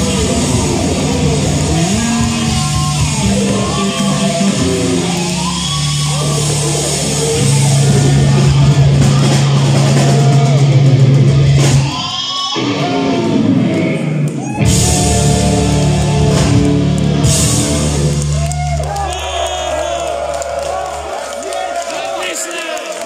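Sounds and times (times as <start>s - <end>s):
bending lead guitar melody: 0.0s - 12.0s, 12.6s - 18.4s
distorted electric guitars: 0.0s - 20.0s.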